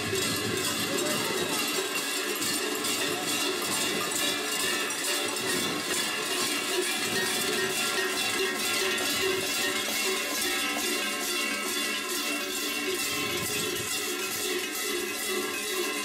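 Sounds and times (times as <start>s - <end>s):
large bells clanging: 0.0s - 16.0s.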